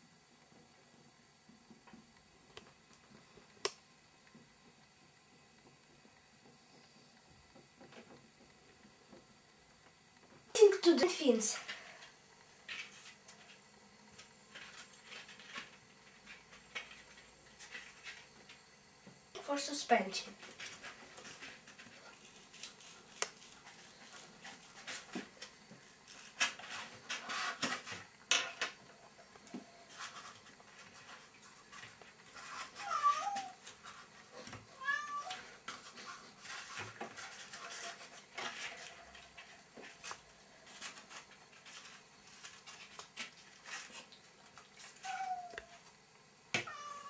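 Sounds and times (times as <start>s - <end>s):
paper rustling and crinkling: 20.4s - 28.1s, 35.2s - 45.2s
cat meowing: 32.8s - 33.6s, 34.8s - 35.4s, 45.0s - 45.8s, 46.6s - 47.0s.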